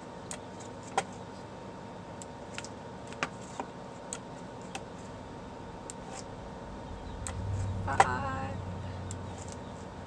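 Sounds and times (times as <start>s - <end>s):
faint room hum: 0.0s - 10.0s.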